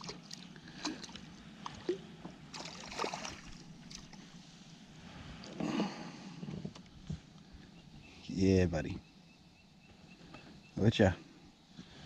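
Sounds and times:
water lapping against kayak: 0:00.0 - 0:07.0
fish thrashing in water: 0:02.6 - 0:04.1.

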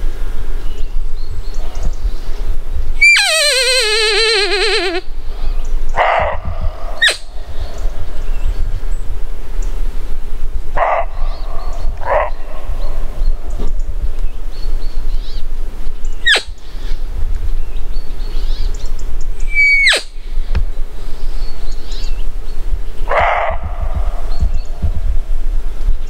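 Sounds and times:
rising squeak: 0:03.0 - 0:05.1, 0:07.0 - 0:07.3, 0:16.3 - 0:16.5, 0:19.5 - 0:20.1
wavering falling cry: 0:03.0 - 0:05.1, 0:06.4 - 0:07.6, 0:19.5 - 0:20.2
deer barking: 0:06.0 - 0:07.9, 0:10.8 - 0:13.0, 0:23.1 - 0:24.3.

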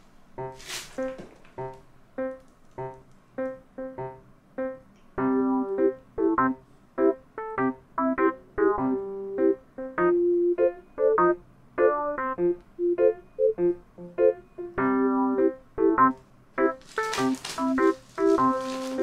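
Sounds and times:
bouncy keyboard music: 0:00.4 - 0:19.0.

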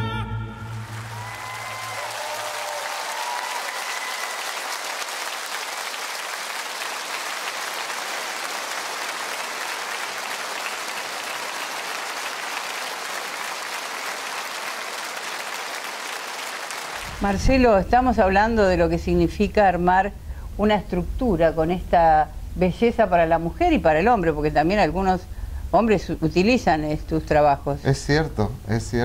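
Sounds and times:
concert audience applauding: 0:00.6 - 0:17.2.

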